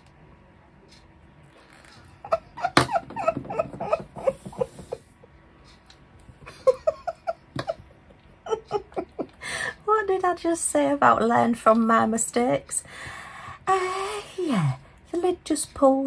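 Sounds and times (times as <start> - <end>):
woman muttering and half-laughing: 1.9 - 5.0, 6.4 - 9.6.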